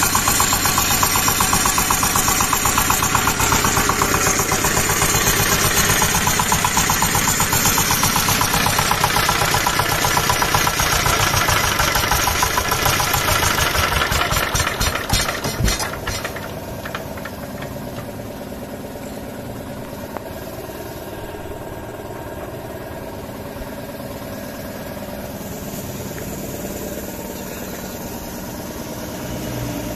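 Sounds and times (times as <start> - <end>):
diesel engine knocking: 0.0 - 29.2.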